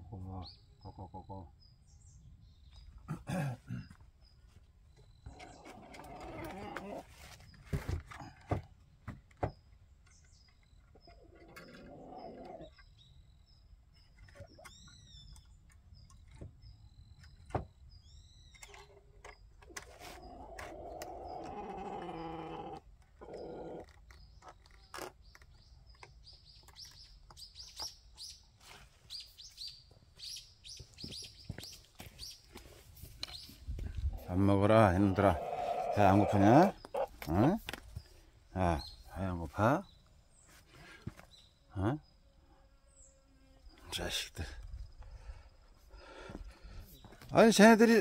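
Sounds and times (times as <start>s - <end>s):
small birds chirping: 0.0s - 48.0s
knocks of coop door and wire: 17.2s - 17.8s.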